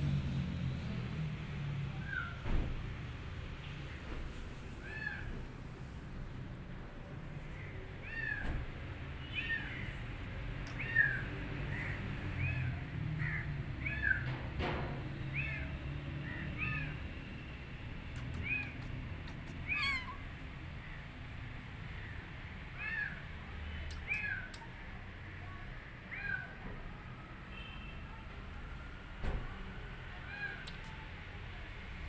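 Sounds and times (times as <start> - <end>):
kittens mewing: 18.2 - 20.4, 23.9 - 24.6.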